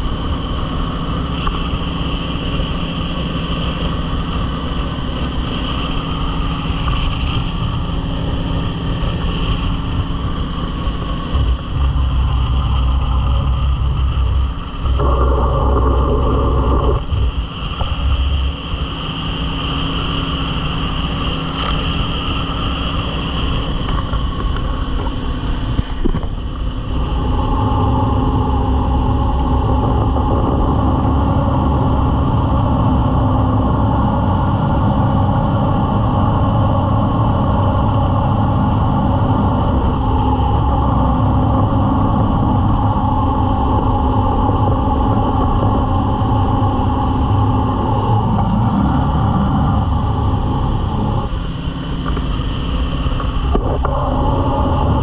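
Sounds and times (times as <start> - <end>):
boat engine running: 0.0 - 55.0.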